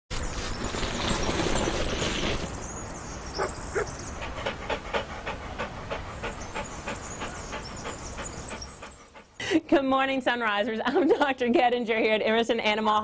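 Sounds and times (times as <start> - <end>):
dog panting: 3.4 - 9.6.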